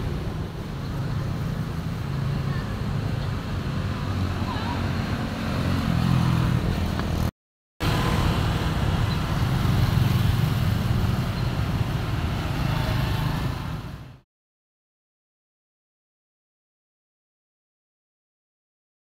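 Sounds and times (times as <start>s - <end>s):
motorbike engines passing: 0.0s - 14.2s.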